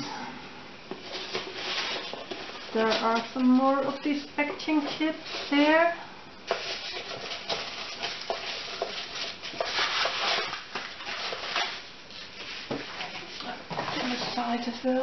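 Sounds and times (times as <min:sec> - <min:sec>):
packing chips rustling: 0:01.0 - 0:05.9, 0:06.5 - 0:14.6.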